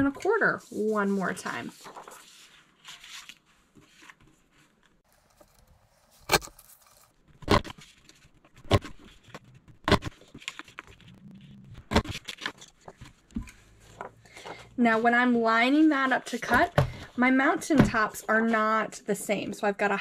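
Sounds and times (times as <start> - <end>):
paper handling: 0.7 - 5.5, 6.1 - 11.1, 11.8 - 14.6.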